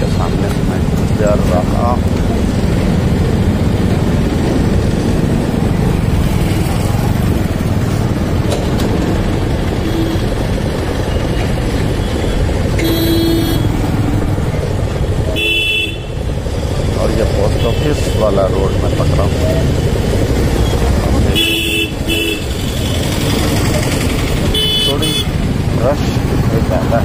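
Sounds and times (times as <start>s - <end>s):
motorcycle engine and road rumble: 0.0s - 27.0s
vehicle horn toots: 12.8s - 13.7s, 15.4s - 16.1s, 21.3s - 22.7s, 24.5s - 25.4s.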